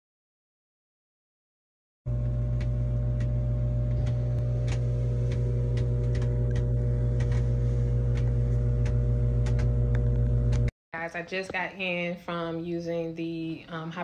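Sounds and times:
air compressor humming: 0:02.1 - 0:10.7.

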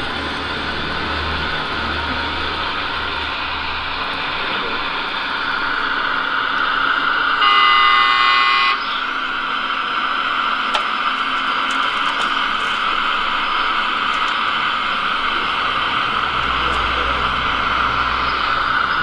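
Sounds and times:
horn sounding: 0:07.4 - 0:09.0.

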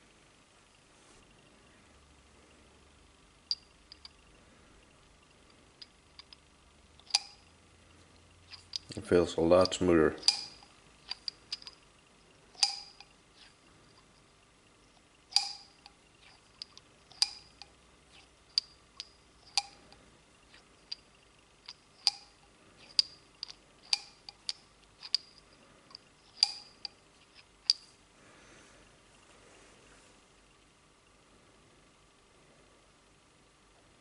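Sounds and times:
sharp metallic clicks: 0:05.8 - 0:07.5, 0:09.6 - 0:11.8, 0:12.6 - 0:13.6, 0:15.3 - 0:28.0.

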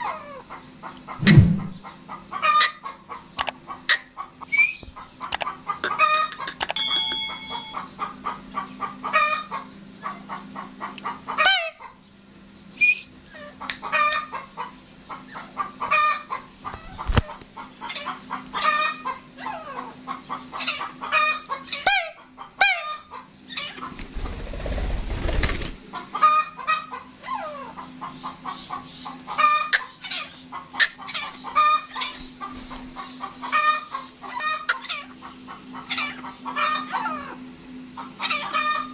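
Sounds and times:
steady low hum: 0:00.0 - 0:02.4, 0:03.0 - 0:13.6, 0:14.3 - 0:26.3
low rumble: 0:01.2 - 0:01.8.

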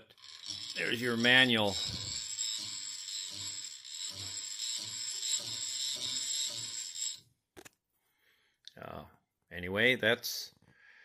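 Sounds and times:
electric motor whine: 0:00.2 - 0:07.2.

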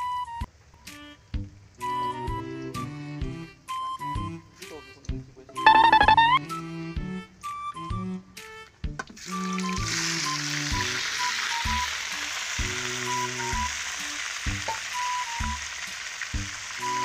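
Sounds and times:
background music: 0:00.0 - 0:15.8
chicken sizzling in hot oil: 0:09.1 - 0:17.0.

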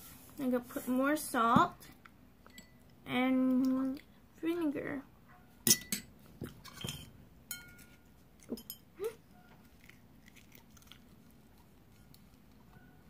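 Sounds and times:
metal spoon clinking eggshell: 0:05.7 - 0:08.9.

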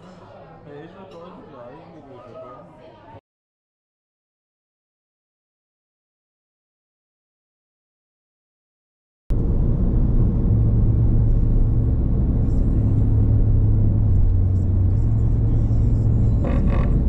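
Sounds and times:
car engine and road noise: 0:09.3 - 0:17.0.

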